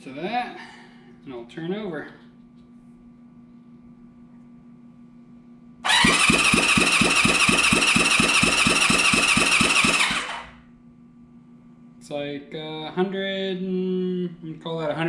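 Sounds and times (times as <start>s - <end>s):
electric starter cranking engine: 5.8s - 10.6s.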